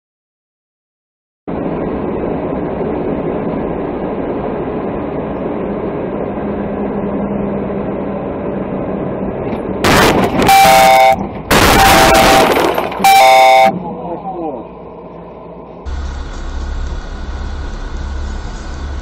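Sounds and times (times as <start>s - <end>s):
vehicle engine and road noise: 1.5s - 19.0s
car crash: 9.8s - 13.7s.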